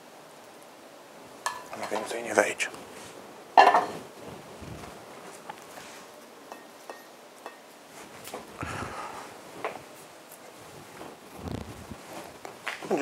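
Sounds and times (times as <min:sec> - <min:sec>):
frying pan clanking on grate: 0:01.4 - 0:02.1, 0:03.6 - 0:04.0
soft handling sounds: 0:02.8 - 0:06.7, 0:09.2 - 0:13.0.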